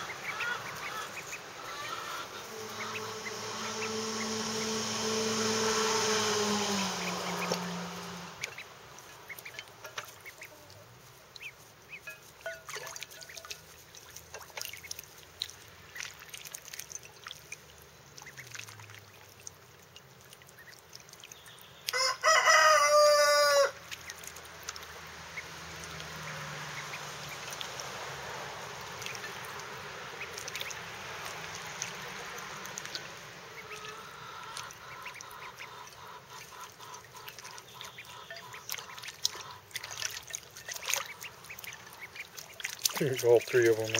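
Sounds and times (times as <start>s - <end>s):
ducklings splashing in water: 0.0s - 43.9s
rooster crowing: 1.6s - 8.3s, 21.9s - 23.8s.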